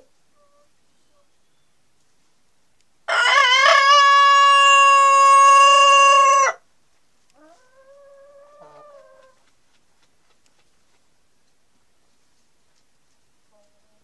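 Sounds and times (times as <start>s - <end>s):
rooster crowing: 3.1s - 6.6s.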